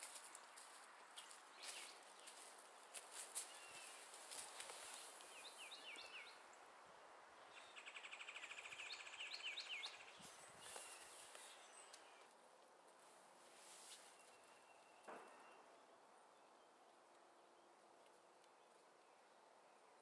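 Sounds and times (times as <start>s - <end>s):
birds chirping: 0.0s - 12.4s
hammock rustling and clicking: 3.0s - 5.6s.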